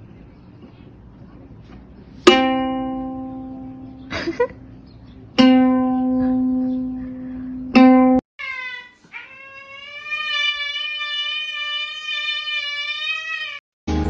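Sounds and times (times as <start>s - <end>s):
ukulele strings plucked: 2.2s - 4.0s, 5.3s - 8.2s.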